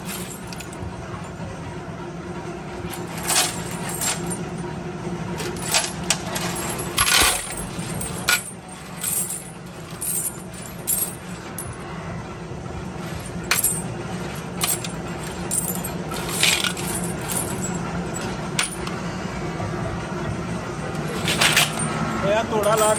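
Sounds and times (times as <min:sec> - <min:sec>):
press humming low: 0:00.0 - 0:22.9
steel washers clinking in metal pan: 0:21.1 - 0:21.9.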